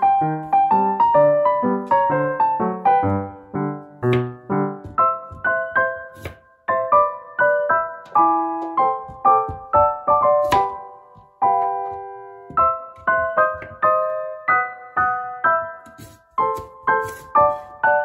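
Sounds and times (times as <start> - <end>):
gentle piano music: 0.0 - 18.0.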